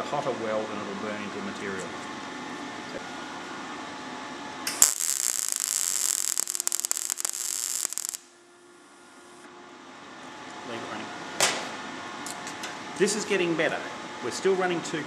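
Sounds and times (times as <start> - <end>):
welder arc crackling and spitting: 4.7 - 8.3.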